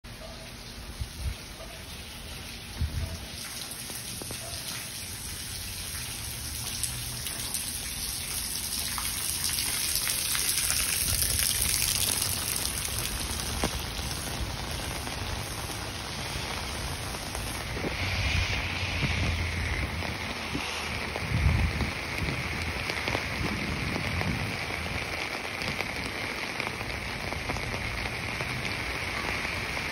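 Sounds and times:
steady water noise: 0.1 - 29.9
drip-like ticks: 3.3 - 13.9.

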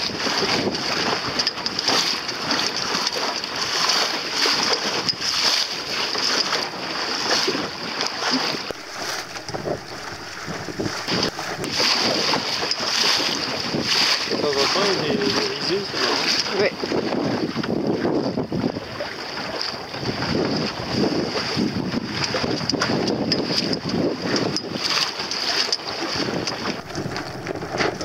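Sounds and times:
water splashing along boat hull: 0.0 - 28.0
wind buffeting microphone: 8.7 - 16.0, 26.2 - 28.0.

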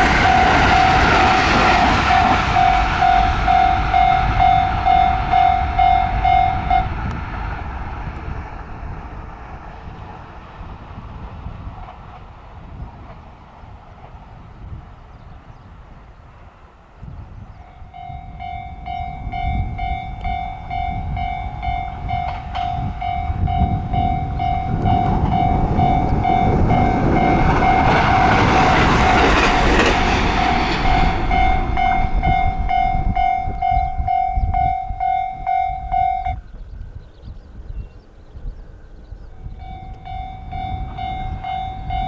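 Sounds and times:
level crossing alarm bell: 0.0 - 6.9, 17.7 - 36.4, 39.6 - 42.0
electric train passing: 0.0 - 42.0.

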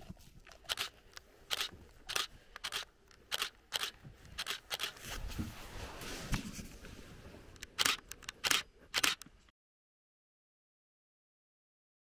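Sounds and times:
rustling noise: 0.0 - 8.0
camera shutters clicking: 0.7 - 0.9, 1.5 - 5.0, 7.7 - 9.2.

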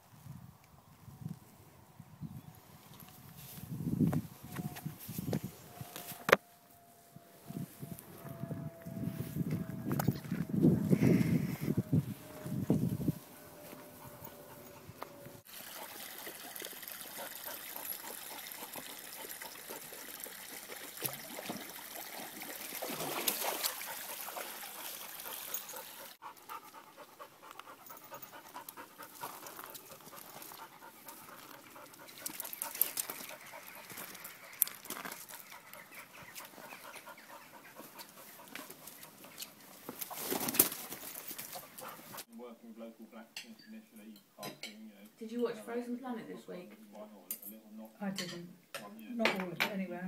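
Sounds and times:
dog panting: 13.6 - 15.9, 16.9 - 20.3, 23.4 - 39.6, 40.9 - 42.3.

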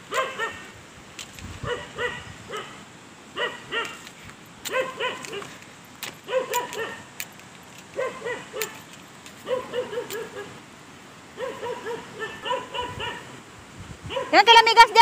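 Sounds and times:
dog barking: 0.1 - 0.7, 1.6 - 2.8, 3.4 - 4.0, 4.7 - 5.6, 6.3 - 7.1, 8.0 - 8.8, 9.4 - 10.6, 11.4 - 13.3, 14.1 - 14.5
sharp clicks: 3.8 - 8.0.

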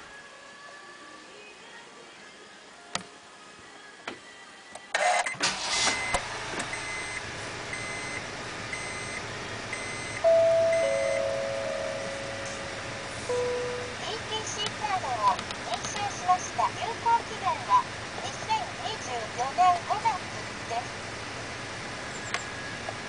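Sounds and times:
car starter cranking: 5.3 - 7.2
car engine idling: 5.5 - 15.7, 16.6 - 23.0
dashboard warning chime pips: 8.8 - 14.1
two-note falling electronic tone: 10.2 - 14.0.

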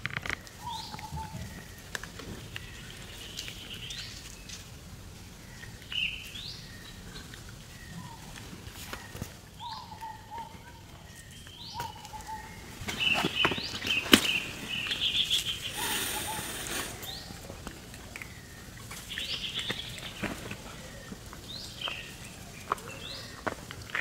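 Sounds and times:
rustling: 11.0 - 18.2
short high chirping calls: 11.6 - 17.4.

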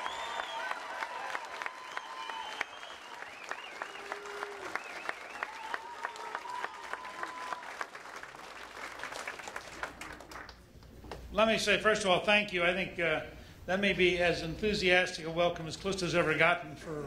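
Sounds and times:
whistles and calls: 0.0 - 0.8, 1.8 - 5.8
crowd applauding: 0.0 - 10.7.

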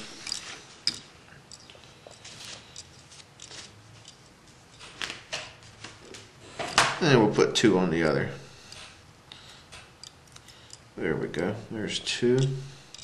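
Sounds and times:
small clicks from tools: 8.6 - 10.9, 12.3 - 13.0.

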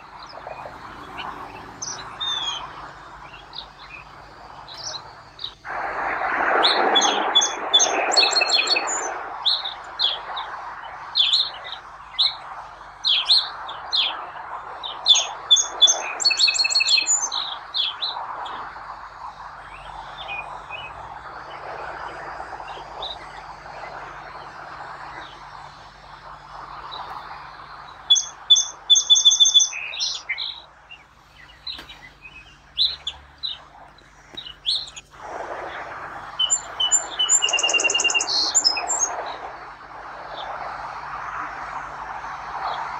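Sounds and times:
song sparrow singing: 0.0 - 5.7, 6.6 - 18.7, 19.6 - 21.6, 26.8 - 35.1, 36.4 - 39.5
steady rushing background: 0.0 - 42.9.

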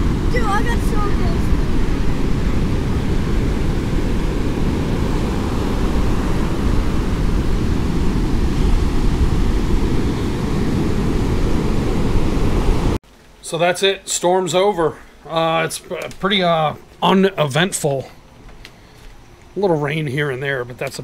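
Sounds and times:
surf breaking on beach: 0.0 - 13.0
wind buffeting microphone: 0.0 - 13.0.

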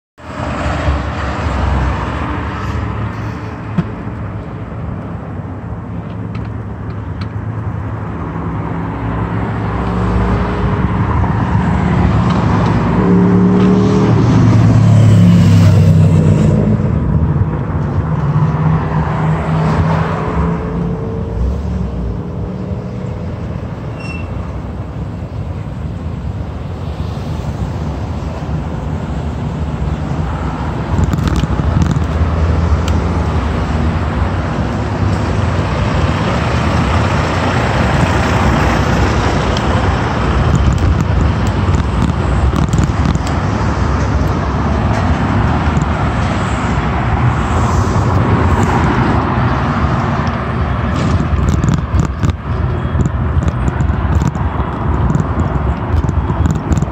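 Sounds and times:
street traffic rumble: 0.2 - 56.9.

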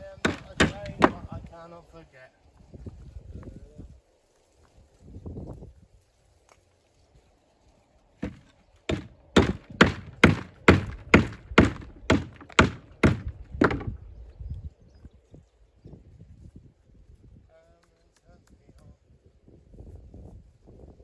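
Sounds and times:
hammer striking stone: 0.2 - 1.3, 8.2 - 13.9.

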